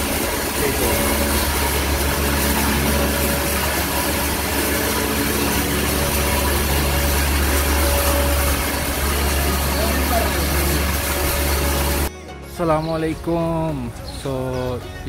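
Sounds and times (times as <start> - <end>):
machinery droning: 0.0 - 12.1.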